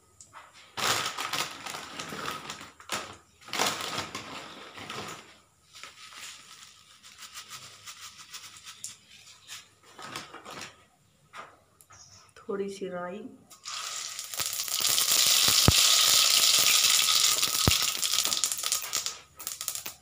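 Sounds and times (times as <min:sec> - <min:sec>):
seeds crackling in hot oil: 0:13.5 - 0:20.0.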